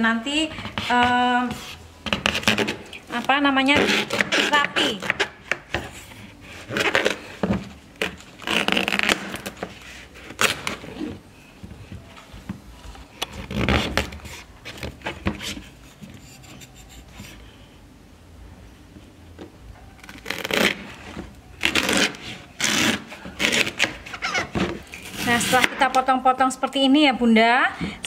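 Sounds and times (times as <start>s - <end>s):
knife slicing plant stem: 24.9s - 26.1s.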